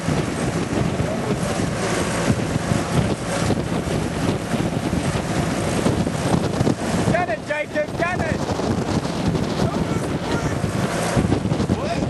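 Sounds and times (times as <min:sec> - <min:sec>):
lawnmower engine running: 0:00.0 - 0:07.7, 0:09.9 - 0:11.5
wind buffeting microphone: 0:00.0 - 0:12.0.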